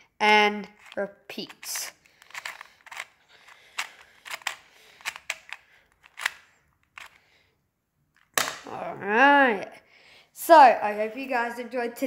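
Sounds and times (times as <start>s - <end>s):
puzzle cube clicking as twisted: 0.8s - 7.2s.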